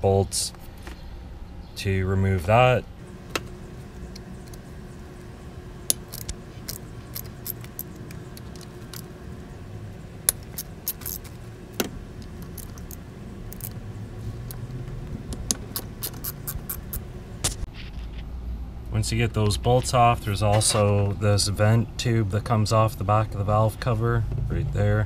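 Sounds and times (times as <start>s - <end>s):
faint steady low hum: 0.0s - 25.0s
metal clicks of hand tools: 15.3s - 17.0s.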